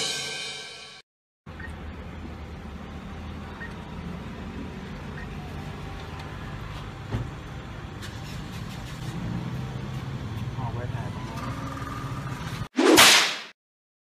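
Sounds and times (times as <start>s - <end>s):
street traffic rumble: 1.5s - 12.7s.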